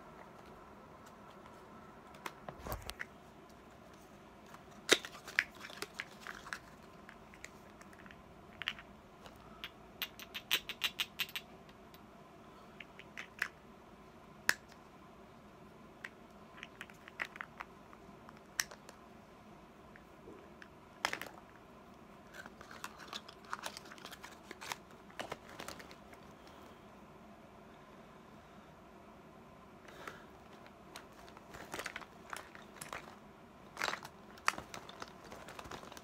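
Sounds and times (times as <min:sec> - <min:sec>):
objects clicking and tapping: 0:04.5 - 0:12.0, 0:33.8 - 0:36.0.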